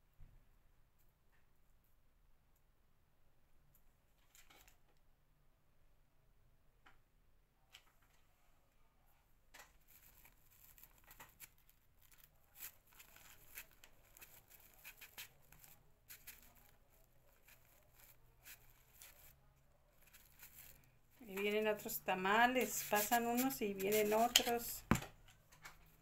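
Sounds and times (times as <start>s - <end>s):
rustling of artificial flowers: 9.7s - 26.0s
tap: 24.9s - 25.1s.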